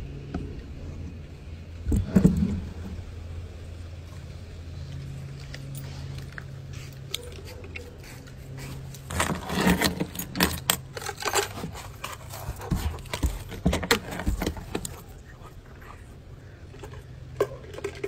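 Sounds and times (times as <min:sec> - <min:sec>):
steady low hum: 0:00.0 - 0:18.0
metallic jingling and clattering: 0:09.1 - 0:15.1.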